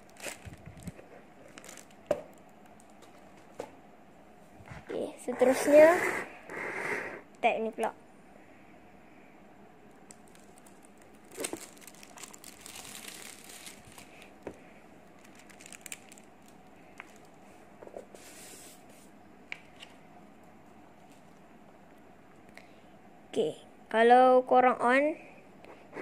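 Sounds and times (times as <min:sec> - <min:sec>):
plastic wrap crinkling and tearing: 0:00.0 - 0:03.3, 0:10.1 - 0:14.5, 0:15.1 - 0:17.4.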